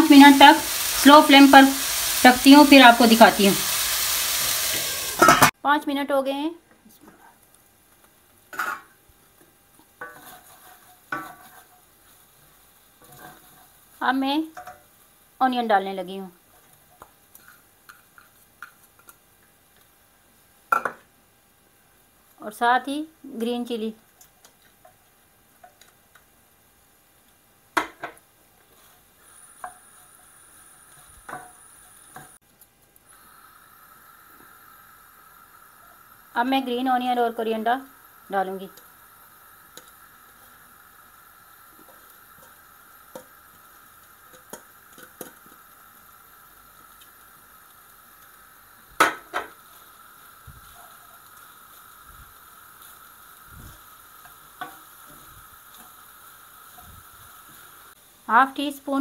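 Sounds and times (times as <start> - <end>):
food sizzling faintly: 0.0 - 21.1, 21.7 - 59.0
spatula scraping a pan: 10.0 - 11.9, 13.0 - 13.8.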